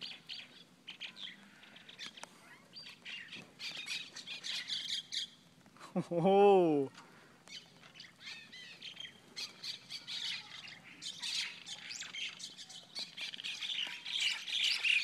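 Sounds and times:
mynas calling: 8.0 - 15.0.

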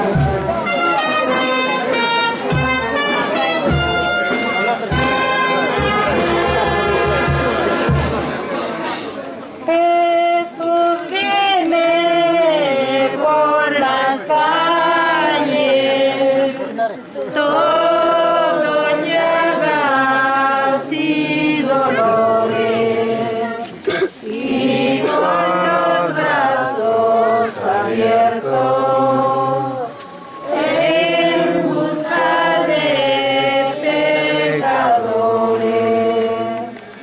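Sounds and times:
women singing a hymn: 9.7 - 36.8.

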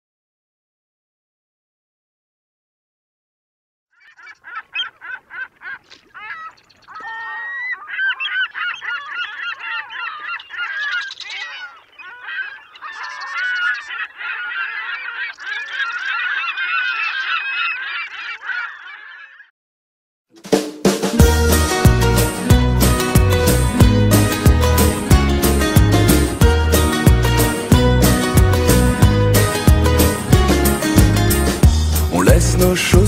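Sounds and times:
flock of birds calling: 4.0 - 19.5.

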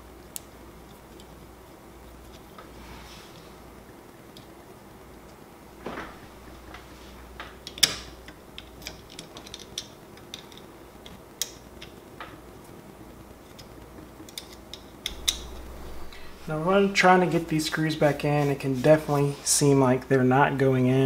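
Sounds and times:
small clicks of metal parts: 7.4 - 12.4, 13.5 - 15.5.

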